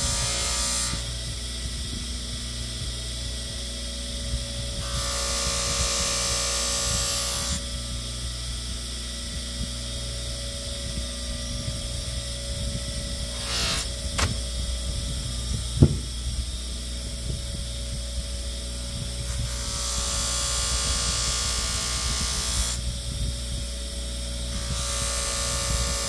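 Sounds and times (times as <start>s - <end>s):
bench polisher motor hum: 0.0s - 1.3s, 3.5s - 14.4s, 16.5s - 26.0s.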